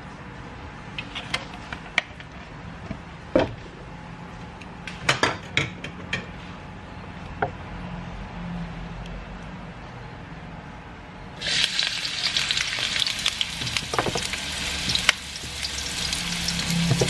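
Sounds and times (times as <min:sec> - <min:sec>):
kitchen utensils clattering: 0:13.6 - 0:15.0.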